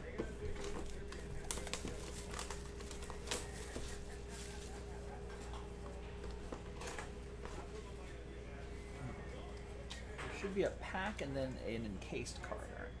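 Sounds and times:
plastic wrap crinkling: 0.5s - 5.0s.

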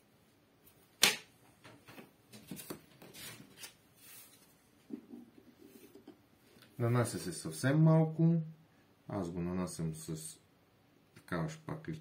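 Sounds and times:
soft taps and rustles: 1.4s - 3.7s.

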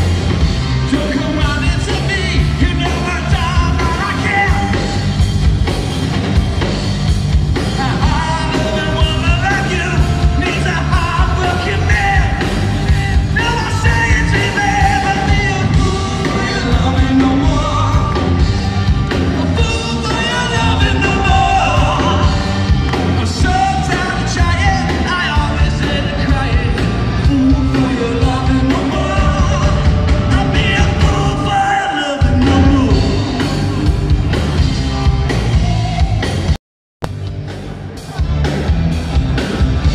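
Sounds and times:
bass guitar: 0.0s - 39.9s
drums: 0.0s - 39.9s
person singing lead vocal: 0.8s - 5.2s, 7.6s - 34.3s
electric guitar: 32.2s - 39.9s.

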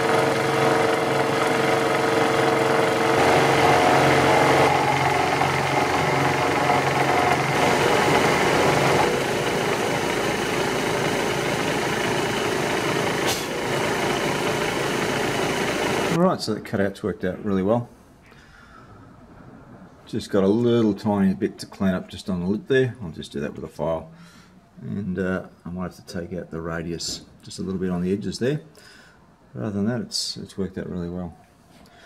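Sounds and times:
milling machine cutting metal: 0.0s - 16.2s.

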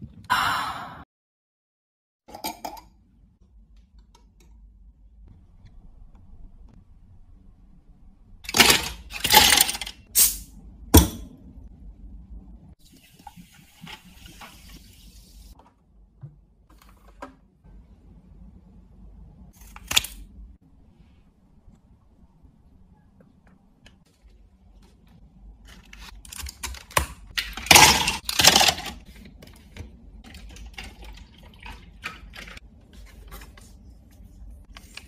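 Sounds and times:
ice cubes clattering into cup: 27.4s - 29.0s.

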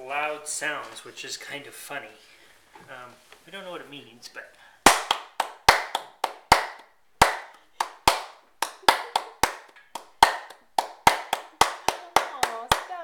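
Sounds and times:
person clapping hands: 4.9s - 13.0s.

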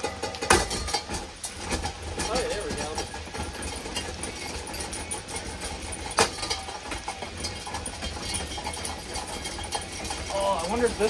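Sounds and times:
ceiling fan rattling: 0.0s - 11.0s.

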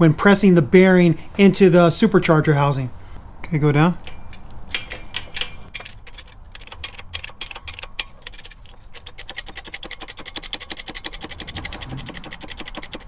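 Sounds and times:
press ratcheting clicks: 4.8s - 13.0s.

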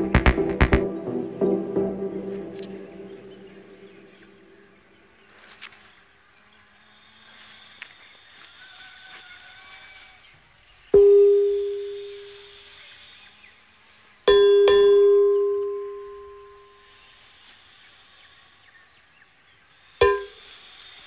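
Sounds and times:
bell-like ding: 14.3s - 16.7s.

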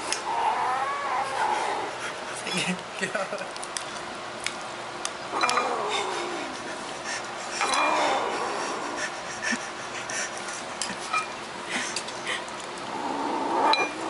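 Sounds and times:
kitten growling: 0.2s - 2.0s, 5.3s - 6.6s, 7.6s - 8.9s, 12.9s - 14.0s.

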